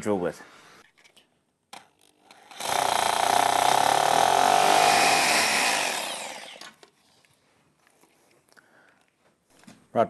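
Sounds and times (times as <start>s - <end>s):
hammer drill drilling into floor: 2.4s - 6.8s.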